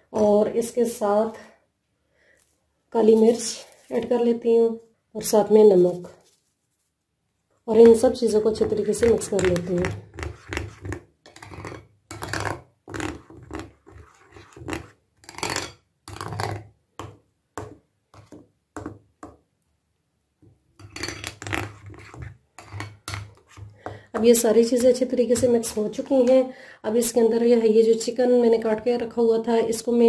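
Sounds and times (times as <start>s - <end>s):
spoon scraping a glass bowl: 7.8s - 16.7s, 20.8s - 24.3s.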